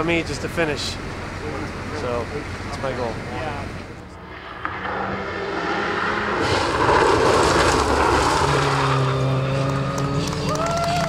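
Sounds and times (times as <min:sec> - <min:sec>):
rally car engine passing: 0:01.0 - 0:11.0
gravel noise from tyres: 0:04.1 - 0:11.0.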